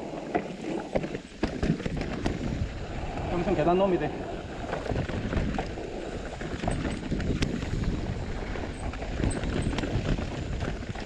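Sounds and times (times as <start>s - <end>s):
bike tyres rolling over dirt: 0.0s - 11.0s
bike clattering over bumps: 0.3s - 2.7s, 4.6s - 11.0s.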